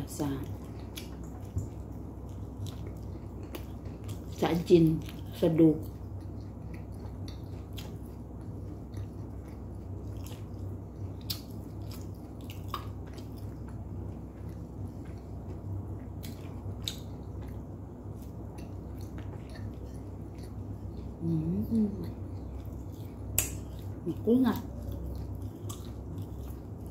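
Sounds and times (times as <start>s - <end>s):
chewing flatbread: 0.0s - 26.9s
wet mouth clicks: 23.3s - 23.8s.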